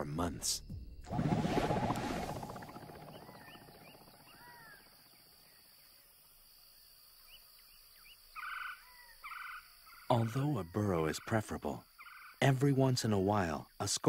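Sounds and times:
low rumble: 1.1 - 4.9.

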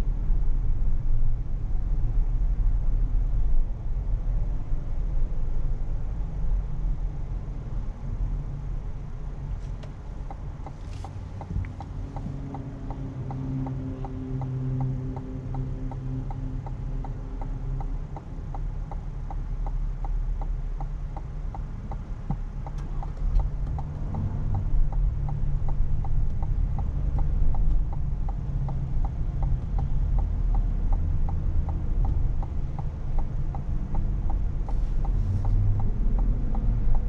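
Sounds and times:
car driving rumble: 0.0 - 37.0
turn signal ticking: 6.9 - 37.0.

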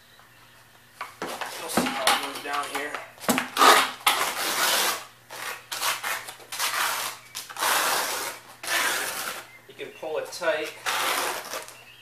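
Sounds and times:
trowel scraping wet cement: 3.5 - 9.5, 10.6 - 11.8.

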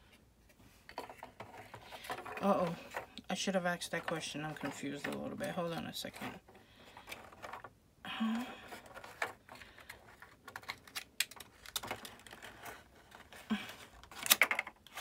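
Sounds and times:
paper crinkling: 8.4 - 15.0
small irregular clicks: 8.9 - 12.5.

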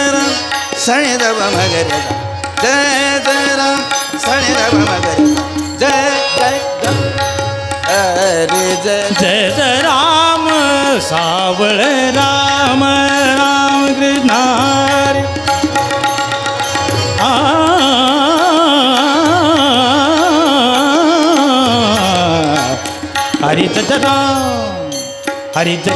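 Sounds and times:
man singing: 0.0 - 25.9
tabla strokes: 0.0 - 25.9.

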